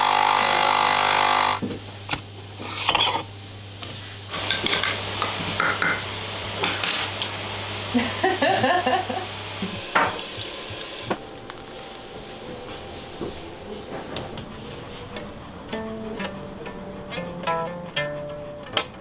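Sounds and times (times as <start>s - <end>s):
coffee machine pump buzzing: 0.0s - 1.6s, 4.3s - 13.7s
steady low hum: 1.6s - 18.7s
mug and cutlery clinking on tile: 4.5s - 6.0s, 6.6s - 7.2s.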